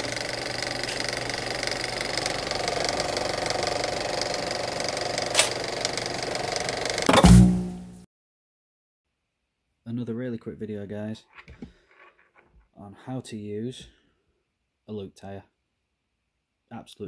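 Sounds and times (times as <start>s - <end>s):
film projector rattle: 0.0s - 7.1s
sharp click: 5.4s - 5.6s.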